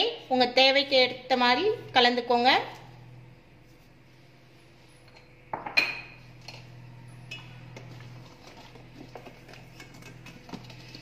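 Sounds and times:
utensils clinking on metal pot: 5.1 - 11.0.

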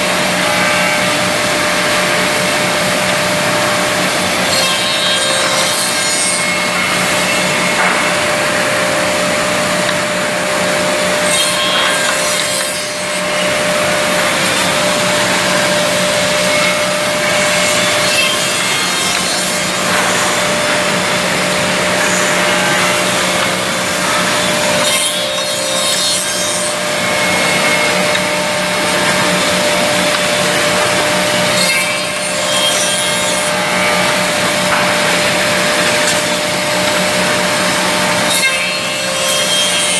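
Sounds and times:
steady motor hum: 0.0 - 4.5, 5.3 - 32.4
cutter heads milling wood: 0.3 - 39.9.

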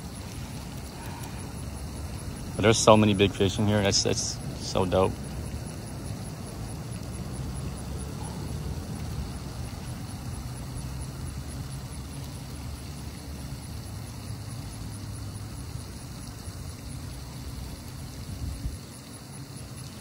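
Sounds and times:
steady low rumble: 0.0 - 11.6
faint high ticking: 0.0 - 18.2.

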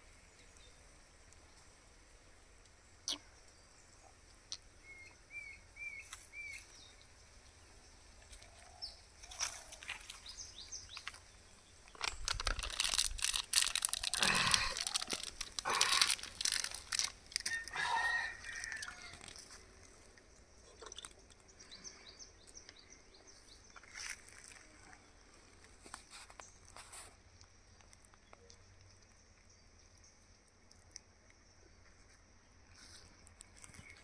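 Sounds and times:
small bird chirps: 3.0 - 7.1
crunching on leaves and gravel: 8.3 - 21.8, 23.6 - 28.8, 32.7 - 34.0.

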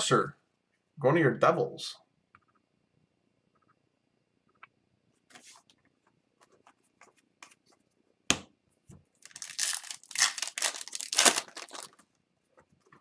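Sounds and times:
foil wrapper tearing: 9.2 - 12.0.

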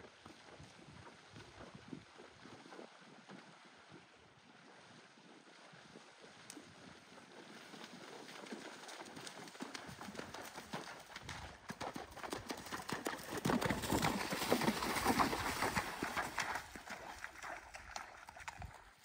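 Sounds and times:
horse hooves splashing in water: 0.0 - 19.0.

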